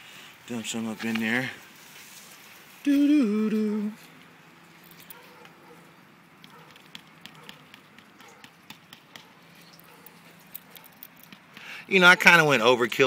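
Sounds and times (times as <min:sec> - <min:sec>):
low hiss: 0:00.0 - 0:05.1.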